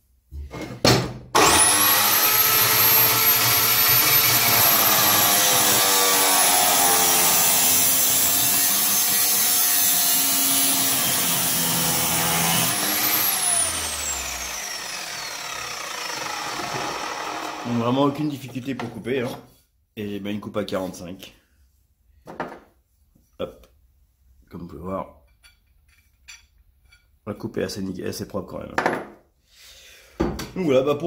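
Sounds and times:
disc grinding through steel: 0:01.4 - 0:18.1
cut-off saw whining: 0:01.4 - 0:18.2.

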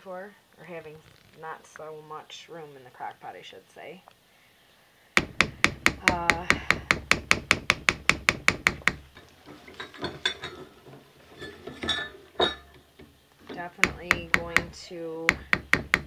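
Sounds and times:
scraping and stirring thick batter: 0:09.0 - 0:14.9
spatula knocking on pot: 0:13.8 - 0:16.0.

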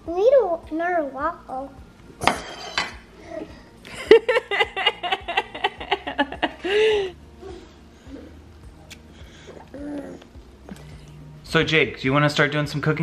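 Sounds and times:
boy laughing: 0:03.9 - 0:07.1.

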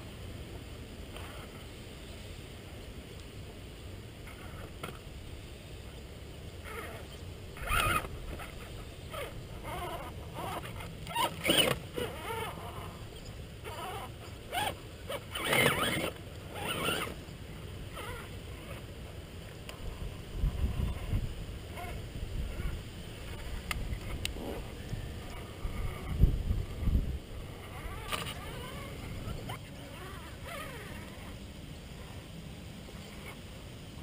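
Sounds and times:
low background noise: 0:00.0 - 0:34.0
toy car electric motor whining: 0:04.2 - 0:05.0, 0:06.6 - 0:17.2, 0:17.9 - 0:18.9, 0:20.4 - 0:26.2, 0:27.4 - 0:31.4.

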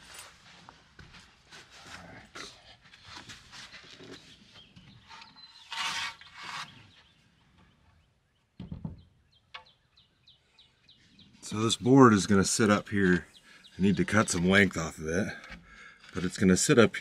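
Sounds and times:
rustling scrape: 0:05.0 - 0:06.9.

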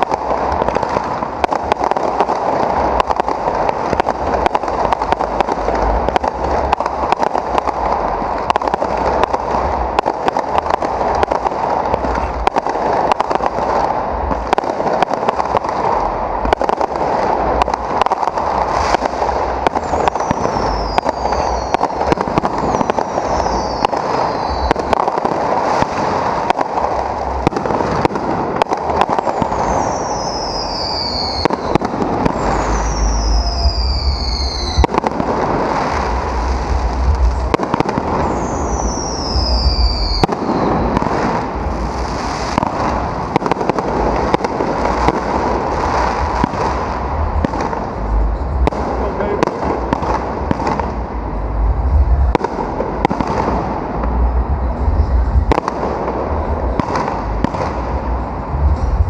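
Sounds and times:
firework shells bursting: 0:00.0 - 0:59.0
fireworks crackling: 0:00.0 - 0:59.0
low booms: 0:00.0 - 0:59.0
falling whistles: 0:19.8 - 0:24.9, 0:29.3 - 0:34.9, 0:38.2 - 0:40.9.

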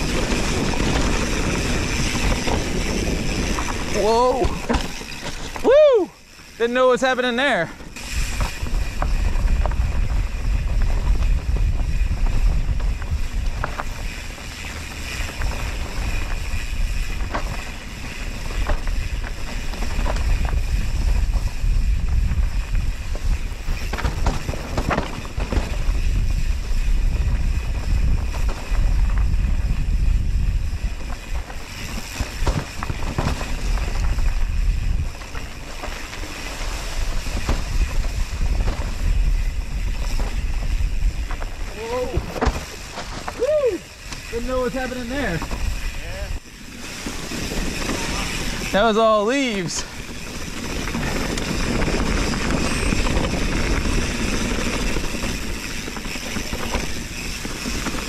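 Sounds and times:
wind buffeting microphone: 0:00.0 - 0:06.2, 0:07.8 - 0:58.0
bike clicks and rattles: 0:00.0 - 0:58.0.

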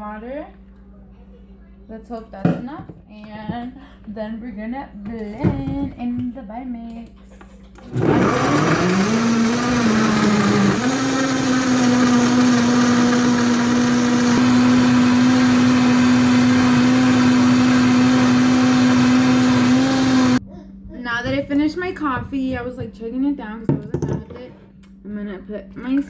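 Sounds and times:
blender motor whining: 0:07.9 - 0:20.4.

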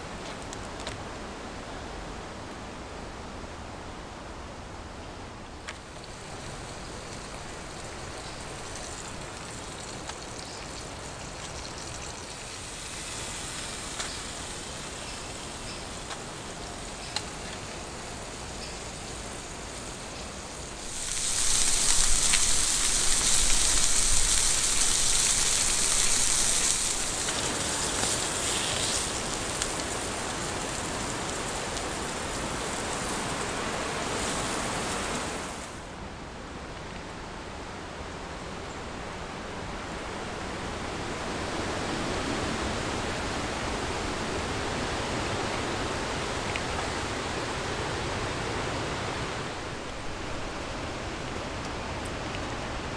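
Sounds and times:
small ticks: 0:05.6 - 0:31.9
steaks sizzling in frying pan: 0:05.8 - 0:35.8.

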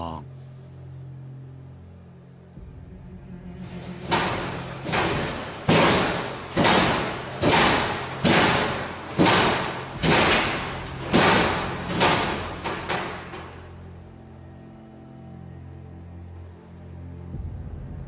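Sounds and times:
steady low hum: 0:00.0 - 0:18.0
loud bangs: 0:03.6 - 0:13.8.

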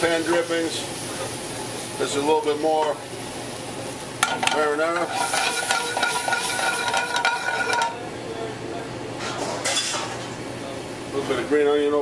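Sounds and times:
sauce sizzling in a skillet: 0:00.0 - 0:07.9.

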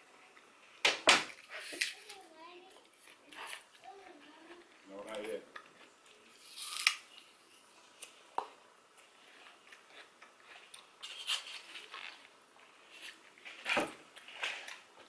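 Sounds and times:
person biting and chewing apple: 0:05.6 - 0:13.3.

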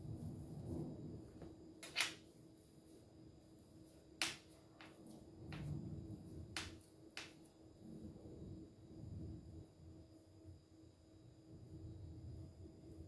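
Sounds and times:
hands rubbing dough: 0:01.8 - 0:07.6.

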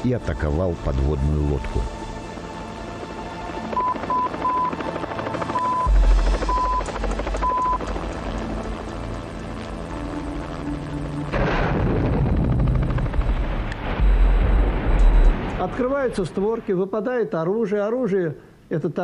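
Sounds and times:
helicopter rotor beat: 0:01.9 - 0:11.3, 0:12.0 - 0:14.4.

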